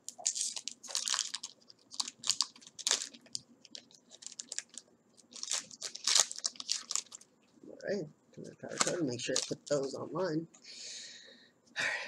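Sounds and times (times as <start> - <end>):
foil wrapper crinkling: 0.0 - 7.3, 8.6 - 10.0.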